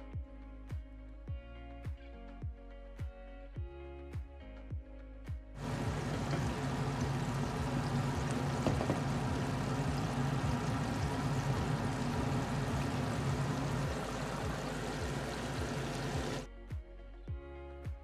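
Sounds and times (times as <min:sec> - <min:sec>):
chicken deep-frying in oil: 0:05.6 - 0:16.5.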